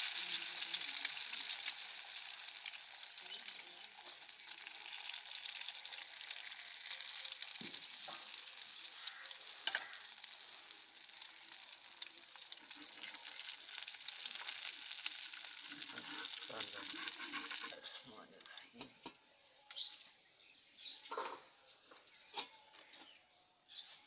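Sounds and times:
egg sizzling on a griddle: 0.0 - 17.8.

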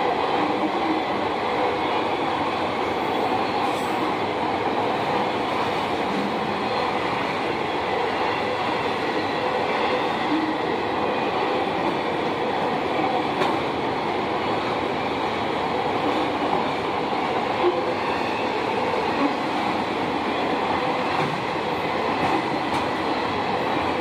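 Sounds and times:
freight train rolling past: 0.0 - 24.0.

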